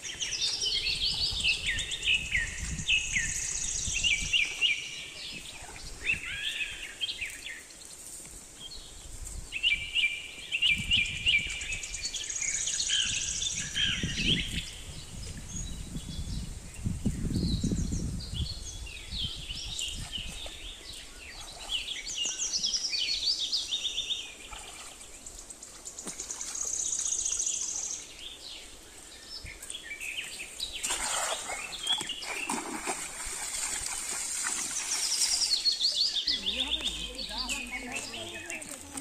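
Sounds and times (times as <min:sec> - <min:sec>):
small birds chirping: 0:00.0 - 0:39.0.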